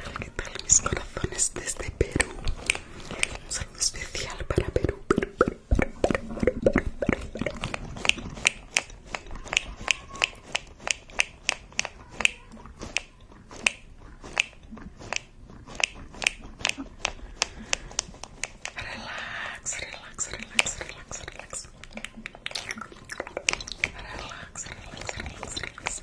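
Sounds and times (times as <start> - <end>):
wet mouth clicks and smacks: 0.0 - 18.9, 19.7 - 26.0.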